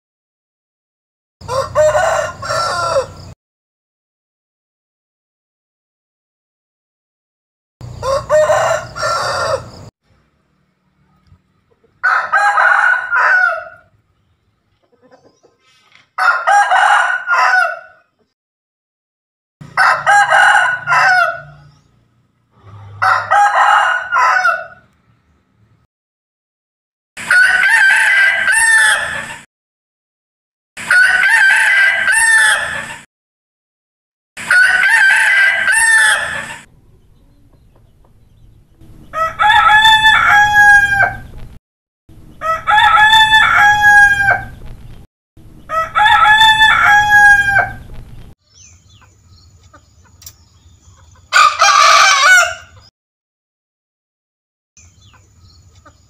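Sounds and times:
roosters crowing: 1.4s - 3.4s, 7.8s - 9.9s, 12.0s - 14.0s, 16.1s - 18.1s, 19.6s - 21.9s, 22.5s - 25.0s, 27.2s - 29.5s, 30.8s - 33.1s, 34.4s - 36.7s, 38.9s - 41.6s, 42.3s - 44.7s, 45.6s - 48.3s, 51.0s - 52.9s.

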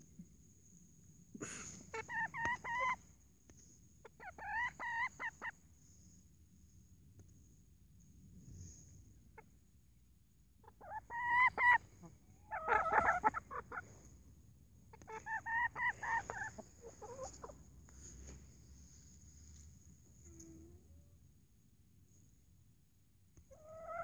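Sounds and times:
chickens clucking: 1.9s - 3.0s, 4.0s - 5.6s, 10.6s - 14.1s, 14.9s - 17.7s, 23.5s - 24.0s.

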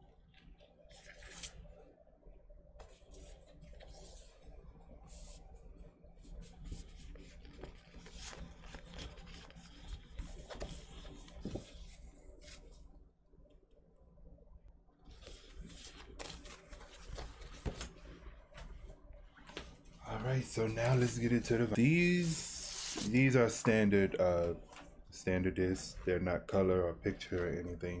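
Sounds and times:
photo prints rustling and swishing: 0.5s - 1.8s, 2.8s - 12.9s, 15.0s - 25.0s.

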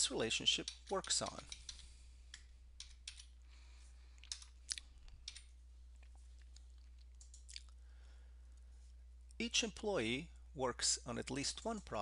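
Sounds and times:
steady low hum: 0.0s - 12.0s
keyboard and mouse clicks: 0.6s - 3.3s, 4.2s - 5.5s, 7.0s - 7.6s.

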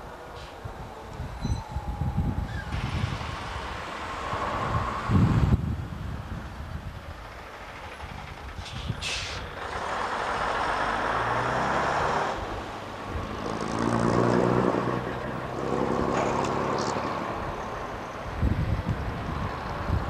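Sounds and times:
bus diesel engine hum: 0.0s - 20.0s
road noise: 0.0s - 20.0s
air hissing: 8.6s - 9.6s.

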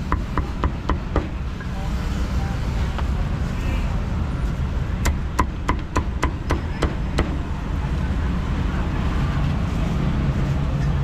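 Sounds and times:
cleaver chopping on wooden block: 0.0s - 1.4s, 5.0s - 7.4s.

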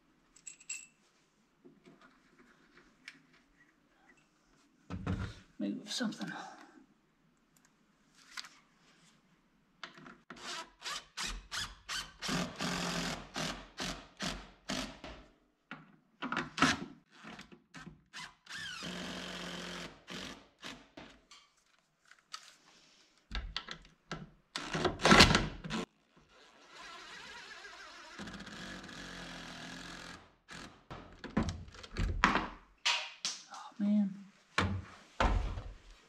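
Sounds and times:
drill driving screws into wood: 10.3s - 15.1s, 18.1s - 21.0s, 26.4s - 30.9s.

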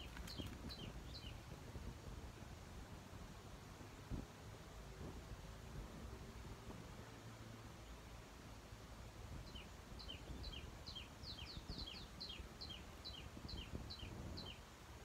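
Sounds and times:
small bird chirping: 0.0s - 1.4s, 9.4s - 14.7s.

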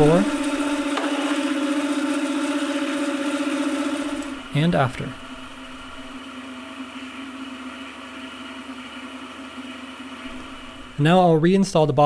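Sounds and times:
servo motor humming: 0.0s - 6.2s.

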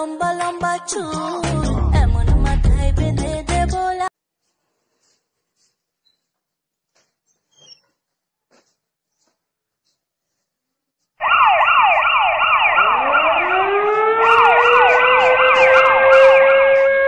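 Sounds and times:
siren wail: 11.2s - 17.0s
siren yelp: 11.2s - 17.0s.

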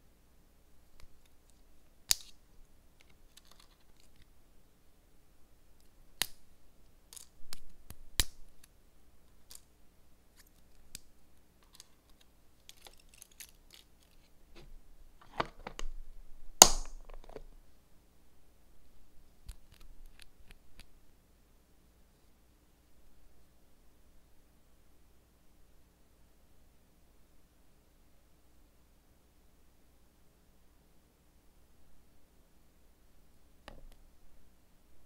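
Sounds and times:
rustling: 10.3s - 16.0s.

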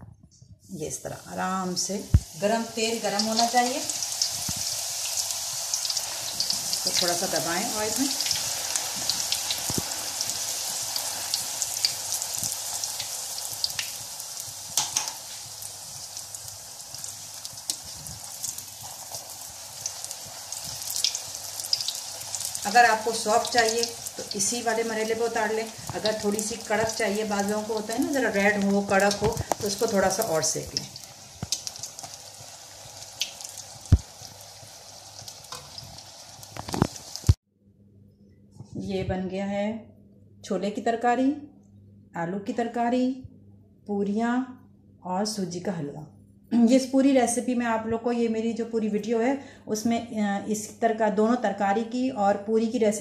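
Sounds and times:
food sizzling in hot oil: 1.3s - 37.4s.

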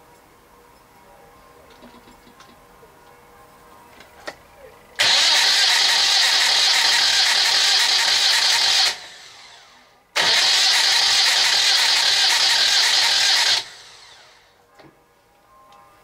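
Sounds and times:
engine electric starter cranking: 5.0s - 14.4s.

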